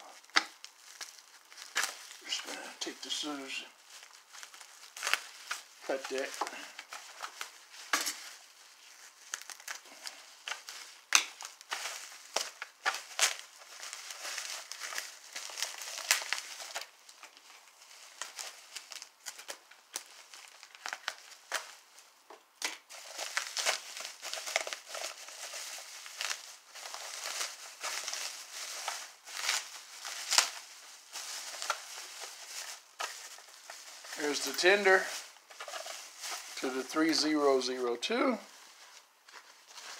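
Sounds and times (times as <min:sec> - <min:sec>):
bubble wrap crinkling and snapping: 0:00.0 - 0:39.9.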